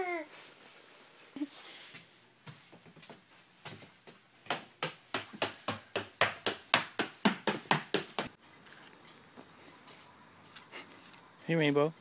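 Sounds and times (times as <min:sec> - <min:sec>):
footsteps on wooden floor: 0:02.0 - 0:08.4.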